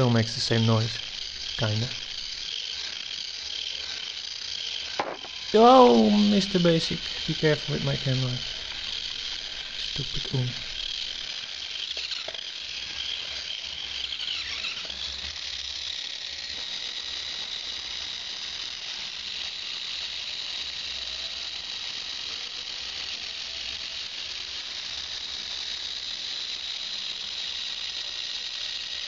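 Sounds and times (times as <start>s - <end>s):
gearmotors whining: 5.0s - 11.3s.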